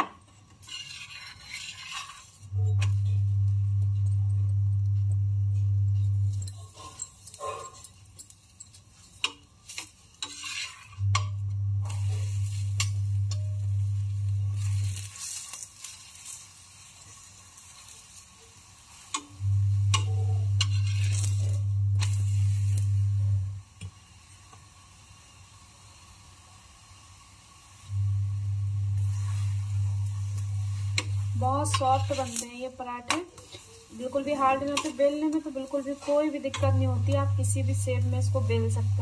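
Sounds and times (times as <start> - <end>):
metal spatula scraping: 0.0 - 4.6, 5.6 - 23.5, 28.9 - 39.0
oil sizzling: 0.0 - 39.0
loud low hum: 2.6 - 6.5, 11.0 - 14.8, 19.4 - 23.6, 27.9 - 32.1, 36.6 - 39.0.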